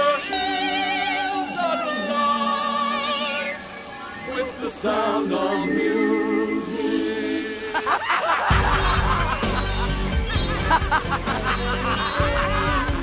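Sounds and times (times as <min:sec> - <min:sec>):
person singing with vibrato: 0:00.0 - 0:08.0.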